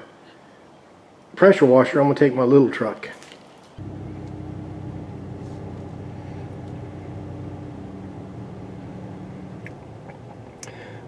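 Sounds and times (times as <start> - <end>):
pickup truck engine hum: 3.8 - 11.0.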